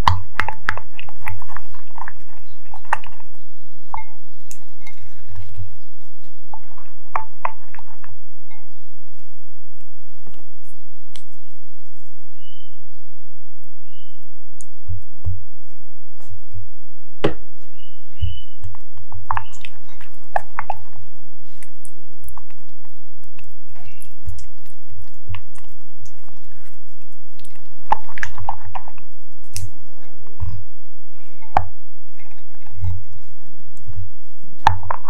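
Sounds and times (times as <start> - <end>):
spoon stirring sticky mixture: 0.0 - 9.3, 17.8 - 35.0
spoon tapping glass bowl: 3.9 - 5.1.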